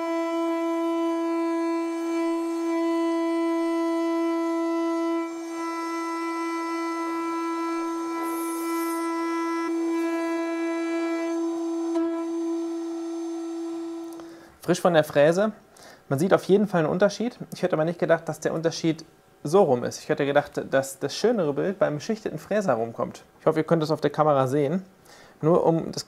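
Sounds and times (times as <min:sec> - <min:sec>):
router spindle milling plastic: 0:00.2 - 0:14.2.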